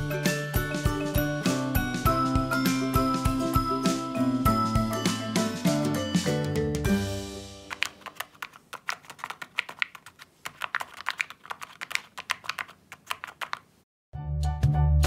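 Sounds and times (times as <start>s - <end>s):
paper fidget toy clicking: 7.7s - 13.7s.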